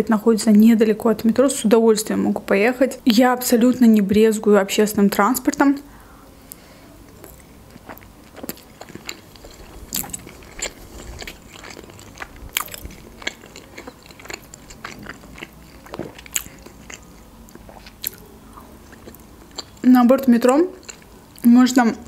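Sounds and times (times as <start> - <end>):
chewing with wet mouth clicks: 6.5 - 21.5
bite into vegetable: 7.2 - 19.7.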